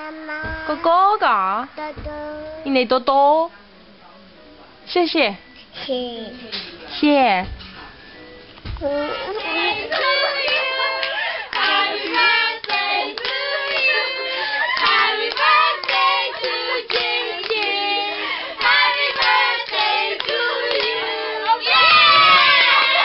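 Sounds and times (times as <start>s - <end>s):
group singing a birthday song: 9.0s - 23.0s
hands clapping: 9.3s - 14.0s, 14.7s - 17.8s, 18.6s - 21.0s.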